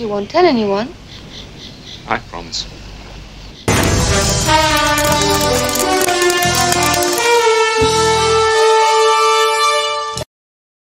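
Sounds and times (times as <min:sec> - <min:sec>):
music holding long chord: 0:03.7 - 0:09.7.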